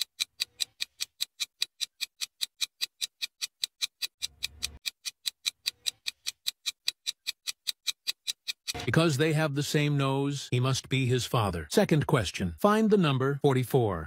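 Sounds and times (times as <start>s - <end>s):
clock ticking: 0.0s - 14.0s.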